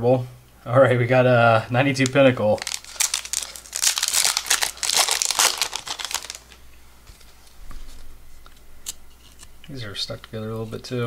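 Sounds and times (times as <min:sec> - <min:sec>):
wrapper tearing and crinkling: 0:02.0 - 0:06.6
faint handling noise: 0:02.0 - 0:10.9.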